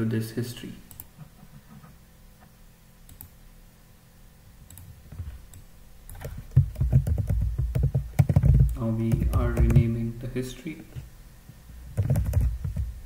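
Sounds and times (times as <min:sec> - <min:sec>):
keyboard typing: 0:05.5 - 0:10.0, 0:11.9 - 0:12.9.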